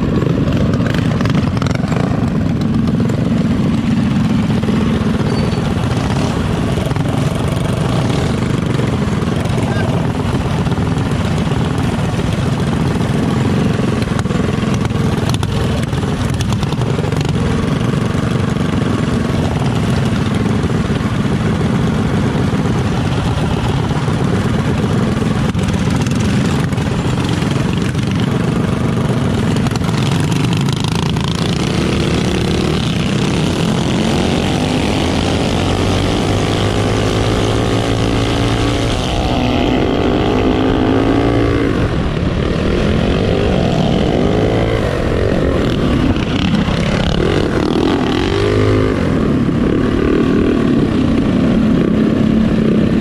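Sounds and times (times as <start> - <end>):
mini bike engines revving: 0.0 - 53.0.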